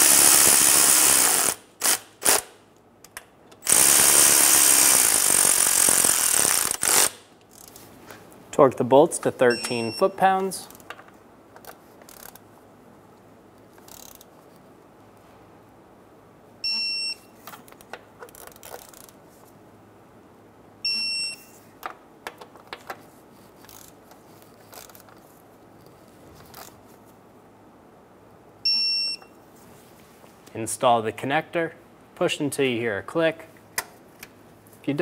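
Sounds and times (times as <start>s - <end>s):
torque wrench beeping: 9.5s - 10.2s, 16.6s - 17.3s
faint ratchet clicks: 11.6s - 12.4s, 13.8s - 14.3s, 23.6s - 24.0s.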